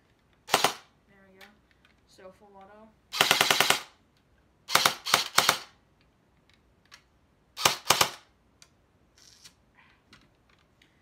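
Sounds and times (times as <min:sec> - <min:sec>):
airsoft gun full-auto bursts: 0:00.5 - 0:00.9, 0:03.1 - 0:04.0, 0:04.7 - 0:05.8, 0:07.6 - 0:08.3.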